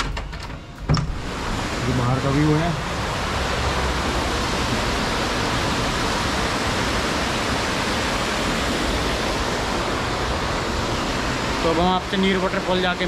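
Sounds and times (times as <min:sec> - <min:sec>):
waterfall water rushing: 0:01.2 - 0:13.0.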